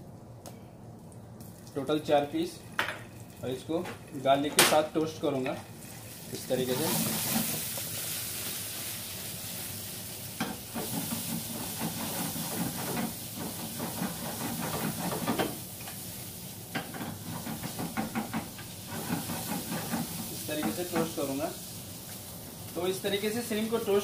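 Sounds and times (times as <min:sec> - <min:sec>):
food sizzling in frying pan: 0:01.4 - 0:24.0
wooden spatula scraping pan: 0:10.8 - 0:15.6, 0:17.0 - 0:21.2.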